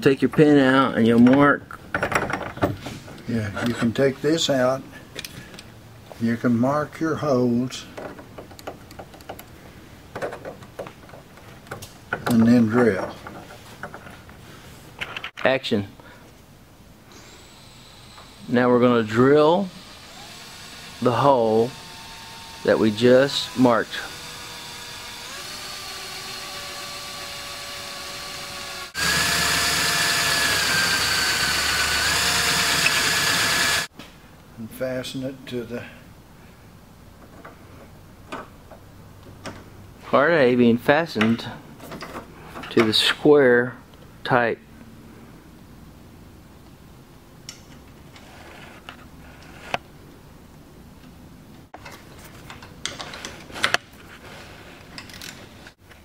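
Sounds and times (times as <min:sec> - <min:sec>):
electric drill whining: 0:17.1 - 0:18.6, 0:19.7 - 0:33.9.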